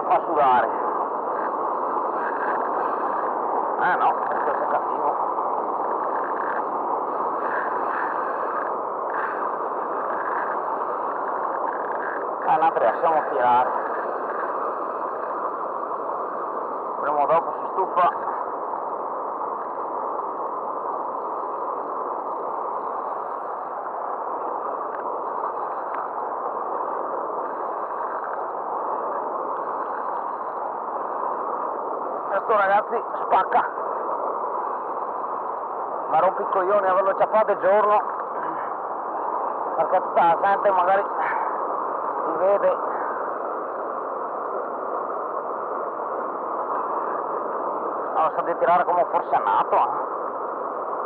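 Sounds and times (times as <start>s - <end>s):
turbulent river water rushing: 0.0s - 51.0s
faint ticks: 7.5s - 12.2s, 24.8s - 26.2s, 27.4s - 28.5s.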